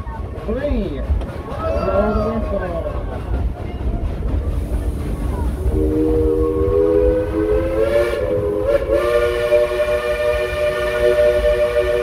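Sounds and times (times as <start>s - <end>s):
train cars rumbling on track: 0.0s - 12.0s
steam locomotive whistle: 5.7s - 12.0s.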